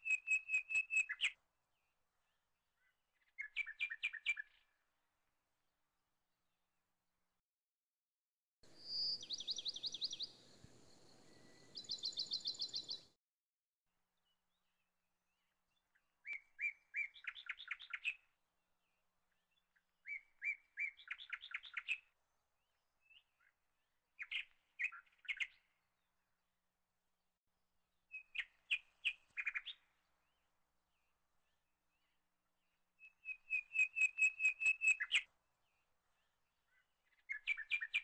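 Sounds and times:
small birds chirping and trilling: 8.7 - 13.1, 15.3 - 18.2, 18.8 - 22.1, 24.2 - 25.7, 28.1 - 30.4, 33.0 - 38.0.

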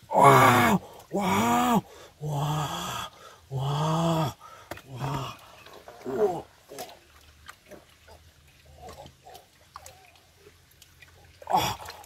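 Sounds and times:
man grunting with effort: 0.1 - 5.4.

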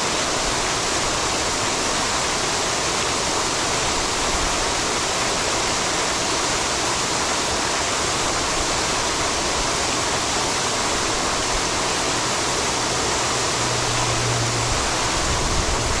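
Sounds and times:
fountain water splashing: 0.0 - 16.0.

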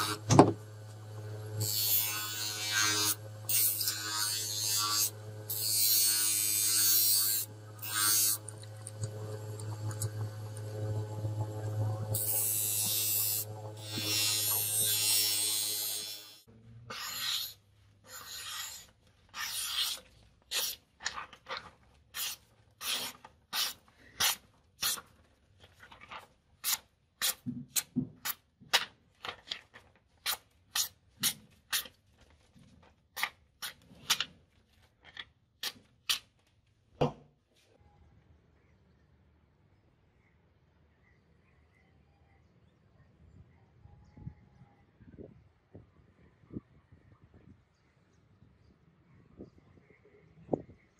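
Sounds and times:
bench grinder humming: 0.0 - 17.4
knife grinding on wheel: 0.0 - 21.3
knife slicing paper: 16.9 - 21.3, 22.2 - 25.1.

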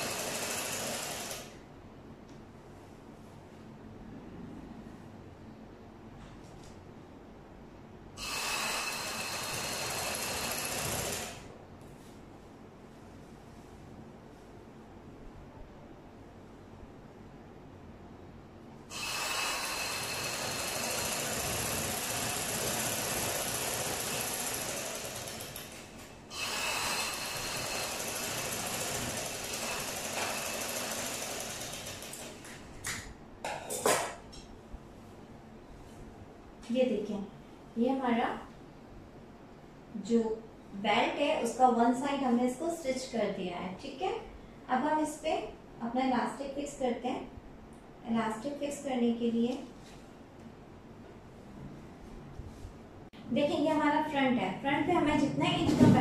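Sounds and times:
sewing machine motor whine: 0.0 - 1.6, 8.2 - 11.5, 18.9 - 32.4.

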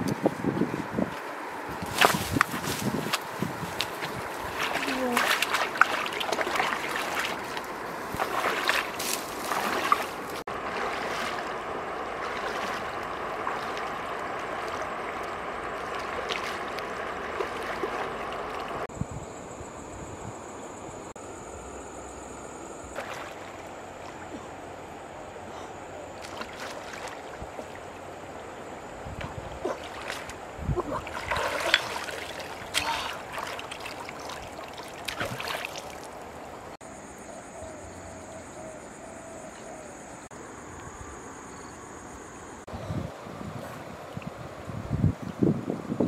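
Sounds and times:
flowing river water: 0.0 - 18.9, 22.8 - 36.8, 42.6 - 46.0
person wading and splashing: 1.7 - 18.9, 23.0 - 24.7, 26.0 - 36.7.

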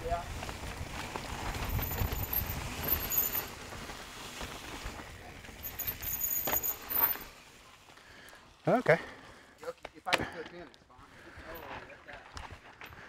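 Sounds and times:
bike rattling: 0.0 - 9.5
bike tyres rolling on dirt: 0.0 - 13.0.

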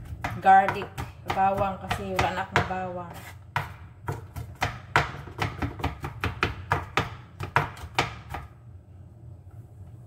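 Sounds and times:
knife chopping on cutting board: 0.0 - 8.5.

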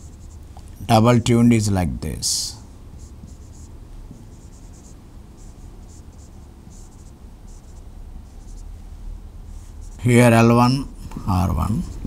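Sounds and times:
steady low hum: 0.0 - 12.0
marker squeaking on whiteboard: 4.3 - 8.7.

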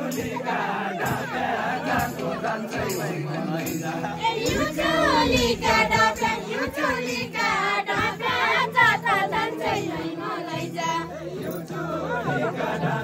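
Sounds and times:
group singing folk song: 0.0 - 13.0
sharp beats: 1.0 - 8.7.

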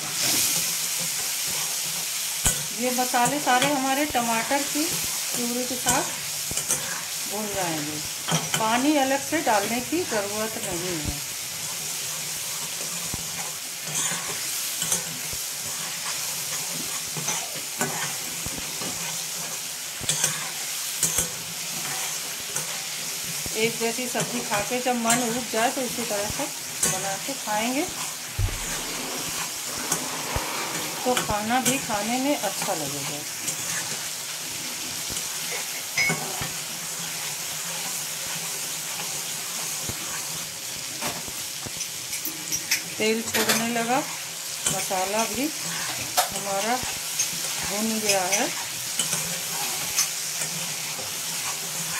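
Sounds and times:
sauce sizzling in oil: 0.0 - 51.9
spatula stirring and scraping: 0.1 - 7.3, 8.2 - 51.9
spatula clacking: 5.7 - 7.1, 11.7 - 23.4
spatula scraping a metal pan: 11.7 - 23.0, 28.0 - 32.0, 41.8 - 51.9.

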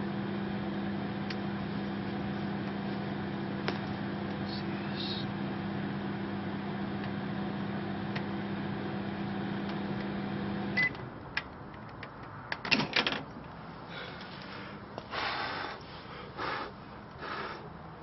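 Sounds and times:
microwave oven humming: 0.0 - 11.0
microwave beep: 9.5 - 11.0.

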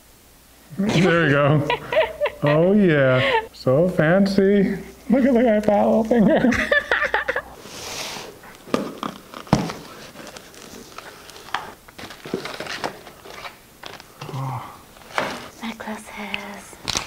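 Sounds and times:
plastic bags crinkling: 8.4 - 15.6
box thumps: 8.6 - 10.0.

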